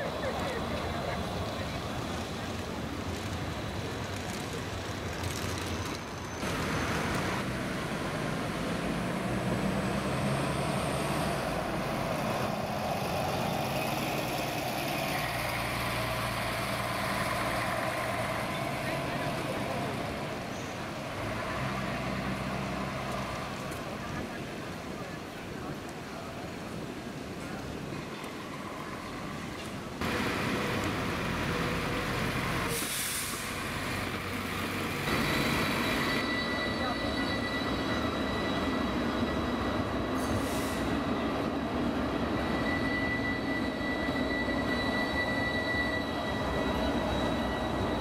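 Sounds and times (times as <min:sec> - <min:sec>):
bus engine passing: 0:00.0 - 0:25.8, 0:28.7 - 0:44.8
air brake hiss: 0:32.6 - 0:33.6, 0:40.2 - 0:41.0.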